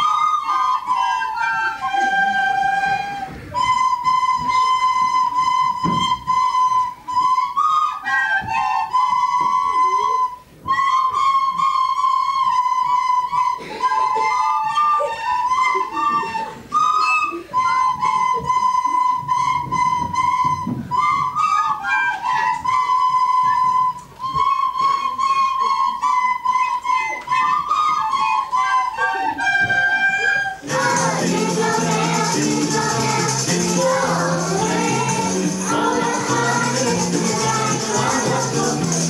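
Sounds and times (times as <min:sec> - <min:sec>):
recorders playing melody: 0:23.7 - 0:39.0.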